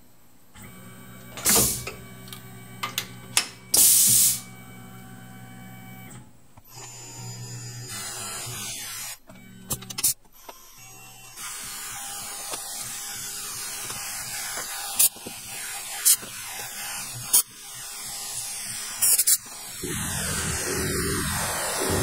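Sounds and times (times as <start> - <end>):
mill spindle and cutting hiss: 1.2 - 4.6, 11.4 - 22.0
low hum: 19.8 - 22.0.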